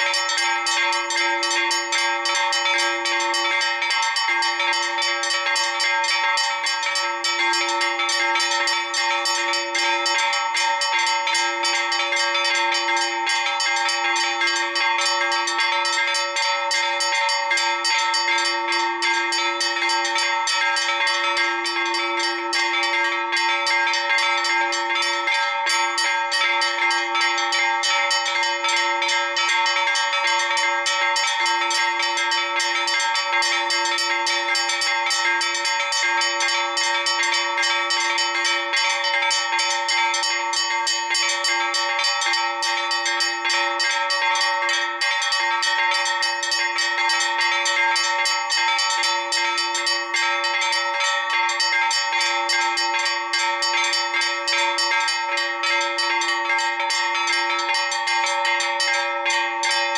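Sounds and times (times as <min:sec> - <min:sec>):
church bells pealing: 0:00.0 - 0:59.9.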